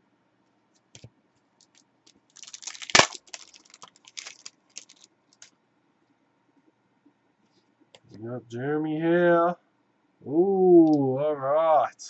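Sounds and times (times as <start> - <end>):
foil wrapper crinkling: 1.6 - 5.5
wrapper sharp crack: 1.6 - 5.6.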